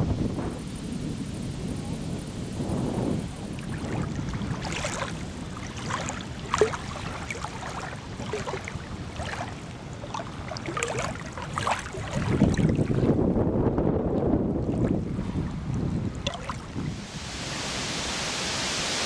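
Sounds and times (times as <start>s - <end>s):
small waves lapping: 3.4s - 13.2s, 14.6s - 19.0s.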